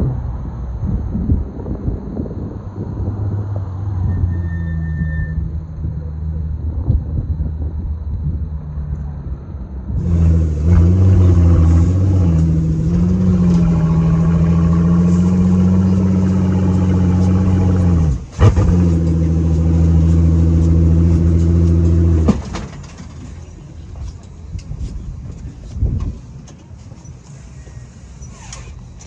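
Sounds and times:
low engine rumble: 0:00.0 - 0:29.0
car engine revving loudly: 0:10.0 - 0:22.6.

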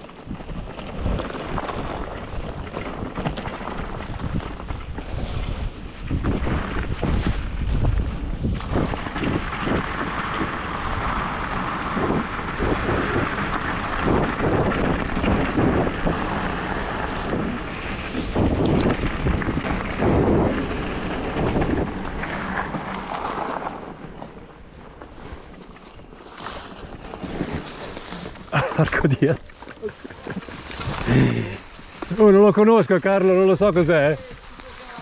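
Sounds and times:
wind buffeting microphone: 0:00.0 - 0:26.2
bike rattling over bumps: 0:00.0 - 0:35.0
tyres crunching on gravel: 0:00.0 - 0:35.0.

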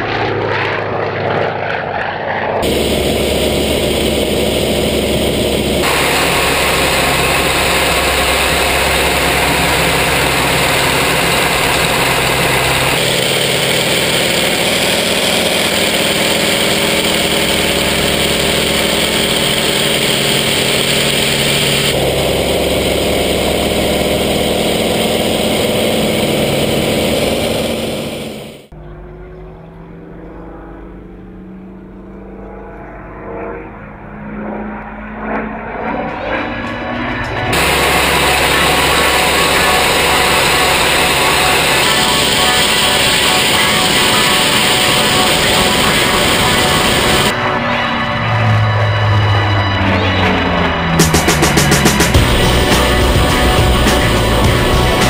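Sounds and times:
aircraft engine drone: 0:00.0 - 0:55.0
airflow rush: 0:02.6 - 0:28.7, 0:37.5 - 0:48.2, 0:50.7 - 0:55.0.

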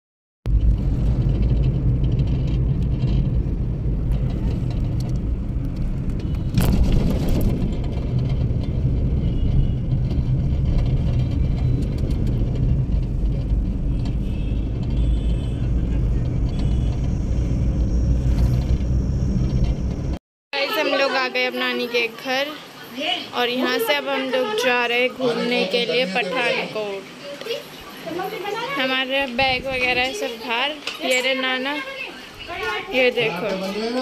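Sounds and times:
car engine and road rumble: 0:00.5 - 0:20.2.

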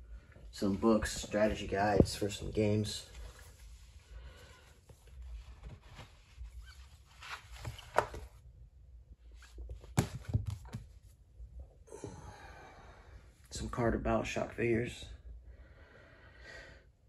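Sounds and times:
books rustling: 0:00.6 - 0:08.4.

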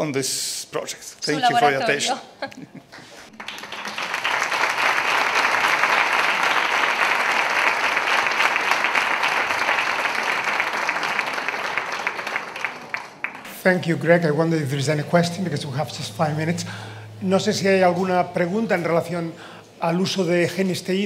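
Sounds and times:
audience applauding: 0:03.0 - 0:13.6.

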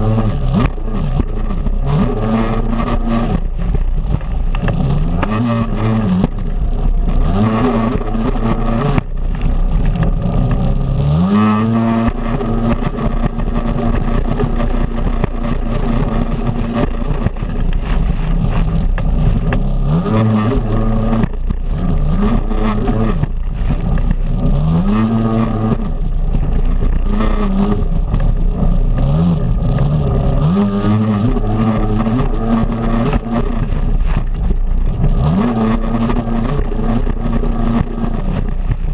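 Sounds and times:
jet ski engine racing: 0:00.0 - 0:38.9
rushing water and spray: 0:00.0 - 0:38.9.

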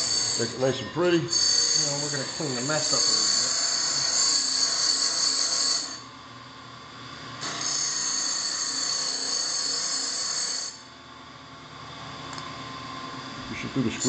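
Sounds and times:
wire wheel brushing metal: 0:00.0 - 0:04.4
grinder wheel spinning: 0:00.0 - 0:06.0.

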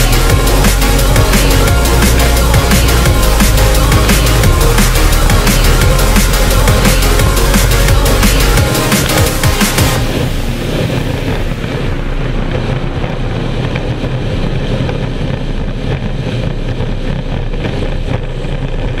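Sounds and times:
outboard engine running at speed: 0:00.0 - 0:19.0
wind buffeting microphone: 0:10.0 - 0:19.0.

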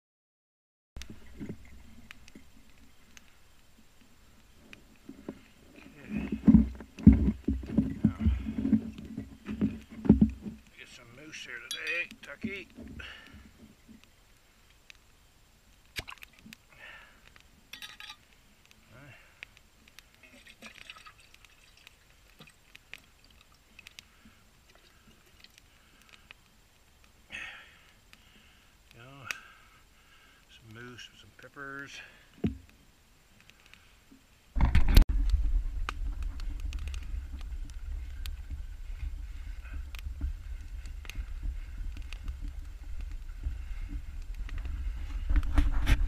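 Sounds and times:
thick sauce pouring and plopping: 0:20.2 - 0:22.6.

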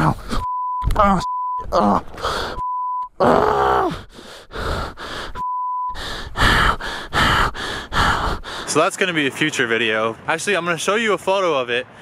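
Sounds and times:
censor bleeps: 0:00.0 - 0:03.2, 0:05.4 - 0:06.0
man groaning in pain: 0:01.0 - 0:02.5, 0:03.2 - 0:04.1
man panting: 0:02.1 - 0:02.6, 0:03.9 - 0:08.7.

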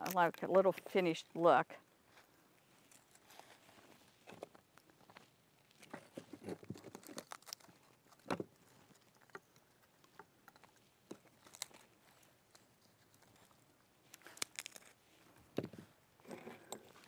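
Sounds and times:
bark crumbling by hand: 0:04.3 - 0:15.0
bark cracking: 0:05.6 - 0:15.0.

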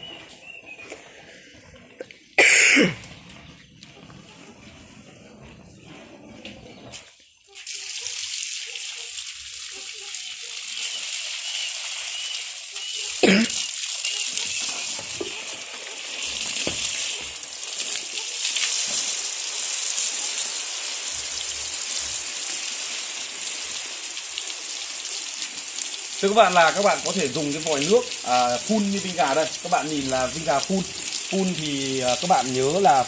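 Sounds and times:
hose spray pattering on foliage: 0:07.0 - 0:33.0.

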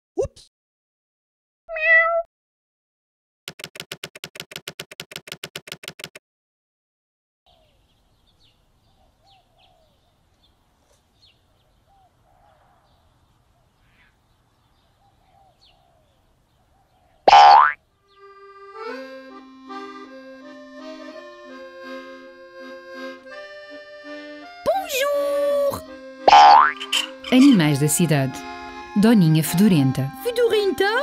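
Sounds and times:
small birds chirping: 0:07.5 - 0:19.0, 0:26.3 - 0:28.4.

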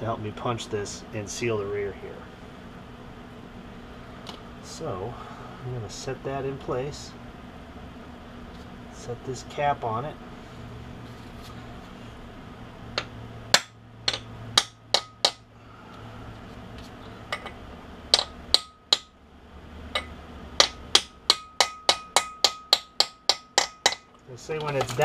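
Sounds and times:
hammer striking metal: 0:13.0 - 0:15.5, 0:17.3 - 0:19.2, 0:20.0 - 0:24.1.

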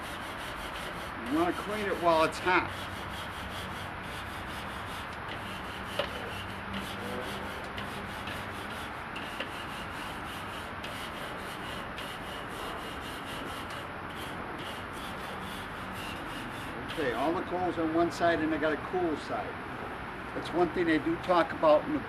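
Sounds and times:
brush scraping a grill grate: 0:00.0 - 0:18.4.

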